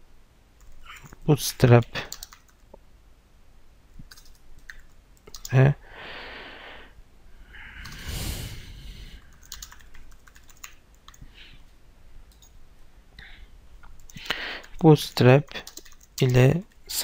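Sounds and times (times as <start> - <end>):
keyboard typing: 2.0 - 2.6, 4.1 - 5.6, 9.2 - 11.2, 12.3 - 12.6, 13.9 - 16.8.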